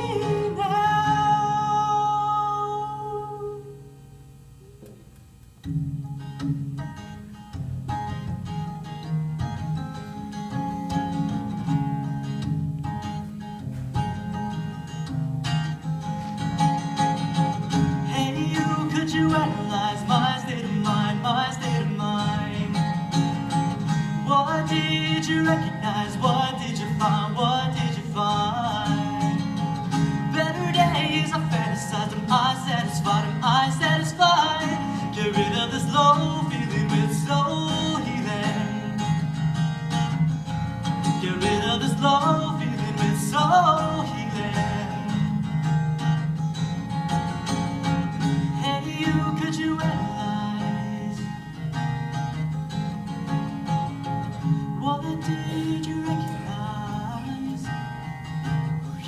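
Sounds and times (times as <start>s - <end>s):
man singing into a microphone: 0.0s - 3.8s, 17.9s - 23.4s, 24.1s - 29.4s, 30.2s - 39.2s, 41.1s - 45.3s, 48.5s - 51.6s, 54.7s - 58.0s
acoustic guitar strumming: 0.0s - 59.0s.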